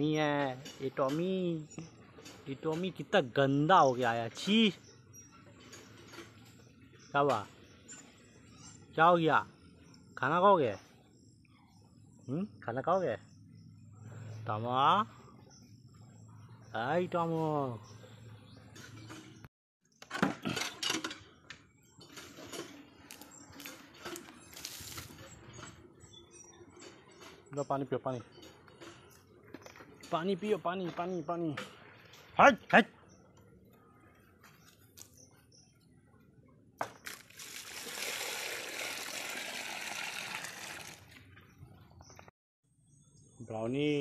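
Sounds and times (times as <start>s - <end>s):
water pouring into tub: 37.0s - 41.1s.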